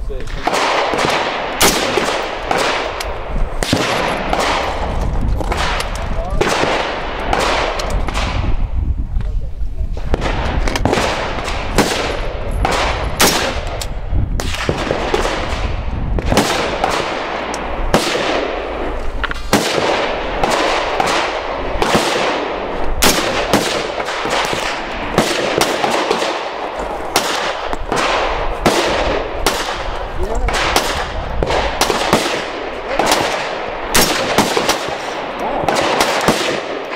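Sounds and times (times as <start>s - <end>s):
gunshots with echo: 0.2s - 8.7s, 10.1s - 13.8s, 14.4s - 36.9s.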